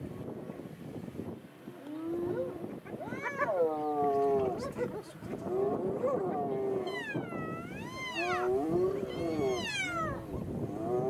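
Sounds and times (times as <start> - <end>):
hyenas calling: 2.2 - 11.0.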